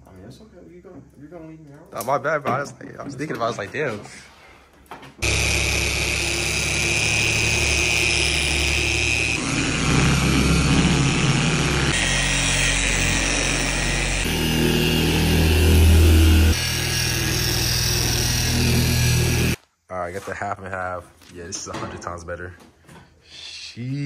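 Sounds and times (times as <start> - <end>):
electric car polisher whining: 5.2 - 19.6.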